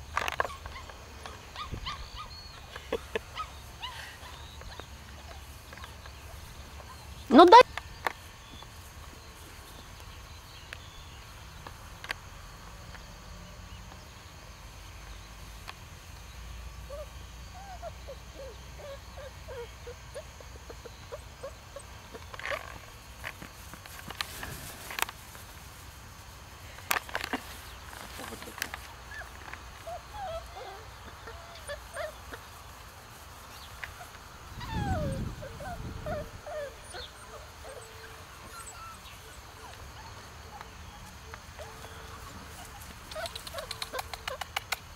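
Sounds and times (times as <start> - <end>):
puppies whimpering: 0.3 - 7.6, 29.1 - 32.4, 34.5 - 44.4
faint clicks: 43.0 - 44.9.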